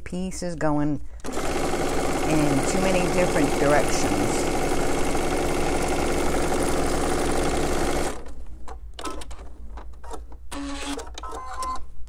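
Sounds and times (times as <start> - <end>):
sewing machine stitching: 1.2 - 8.4.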